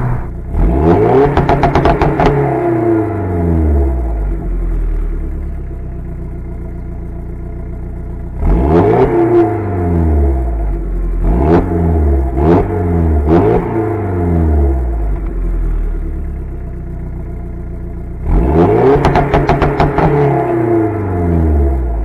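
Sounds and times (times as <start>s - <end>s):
car engine idling and revving: 0.0s - 22.0s
exhaust pops and crackles: 1.2s - 2.6s, 15.0s - 15.7s, 18.9s - 20.4s.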